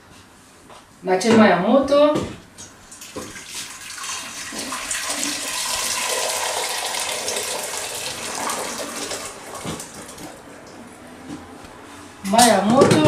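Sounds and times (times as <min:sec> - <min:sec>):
water pouring into a pot: 0:03.0 - 0:10.4.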